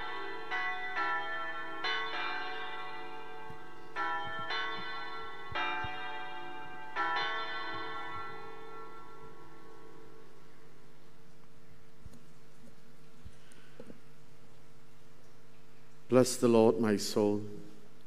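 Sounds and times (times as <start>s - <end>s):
church bells tolling: 0.0s - 10.7s.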